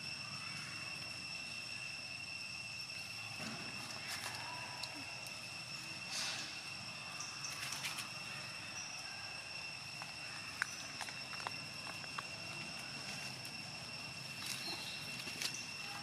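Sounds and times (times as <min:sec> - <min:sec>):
high-pitched whine: 0:00.0 - 0:16.0
dry leaves rustling and crackling: 0:12.9 - 0:16.0.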